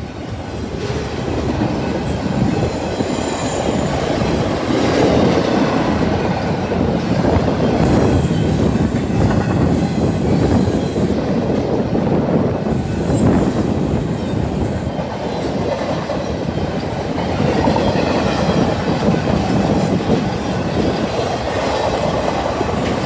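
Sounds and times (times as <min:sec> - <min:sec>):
train wheels clattering: 0:00.0 - 0:23.0
wheel squeal: 0:02.0 - 0:04.4.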